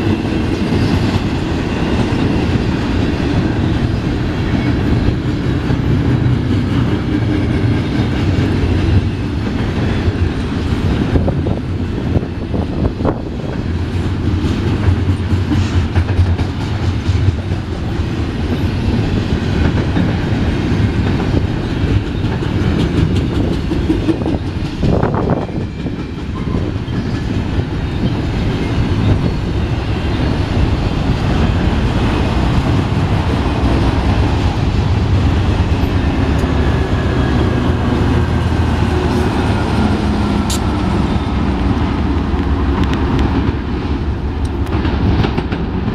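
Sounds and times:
steel wheels rumbling on rail: 0.0 - 45.9
wheels clickety-clack over joints: 0.1 - 45.9.

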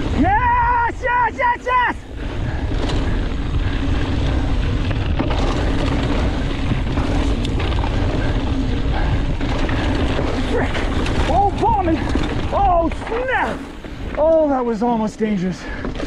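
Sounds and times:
bike tyres rumbling on dirt: 0.0 - 16.0
wind on microphone: 2.1 - 14.0.

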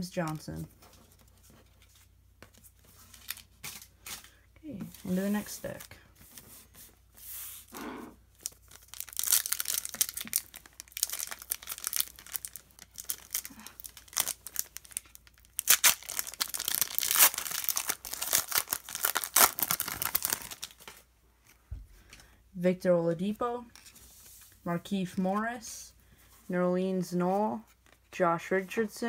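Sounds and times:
foil wrapper tearing and crinkling: 8.4 - 21.0.

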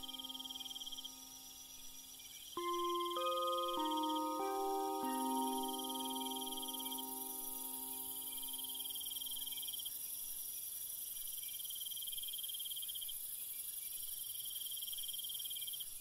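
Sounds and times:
background music chord: 0.0 - 1.4, 2.6 - 9.4
high insect drone: 0.0 - 10.1
insects chirping in trills: 0.0 - 16.0.

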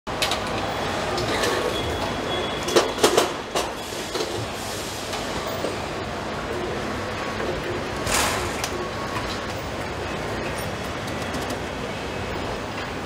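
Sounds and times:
machinery din: 7.2 - 11.6.

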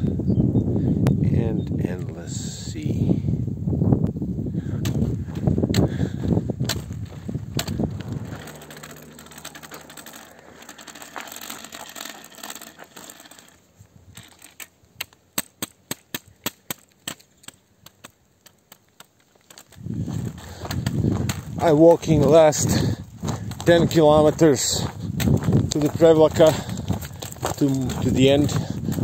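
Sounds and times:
wind buffeting microphone: 0.0 - 10.0, 19.7 - 29.0.

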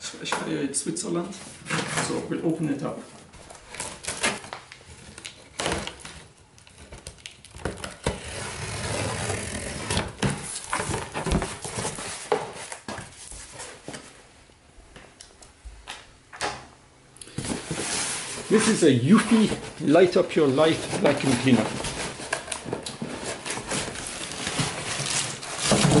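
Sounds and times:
cardboard knocks and rustles: 10.1 - 13.2.

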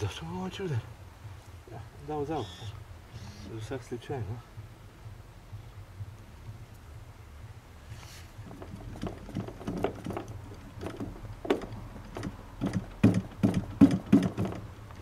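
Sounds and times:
propeller being flipped by hand: 8.3 - 15.0
model engine compression knocks: 8.4 - 15.0.

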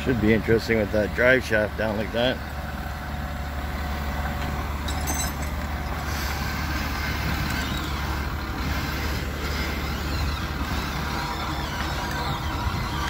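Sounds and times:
truck engine humming: 0.0 - 13.0
winch pulling: 4.2 - 13.0.

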